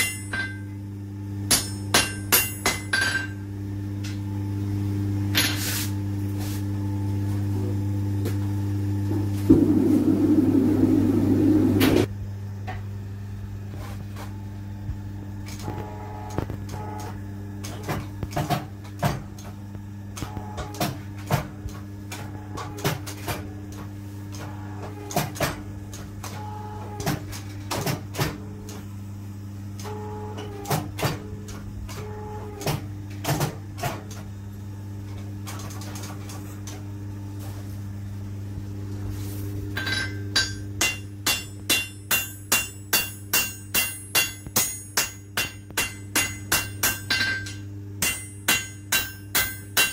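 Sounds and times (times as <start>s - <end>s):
hammer ringing on anvil: 0.0s - 0.8s, 1.5s - 3.4s, 39.8s - 49.9s
press motor humming: 6.8s - 12.1s, 14.3s - 39.0s.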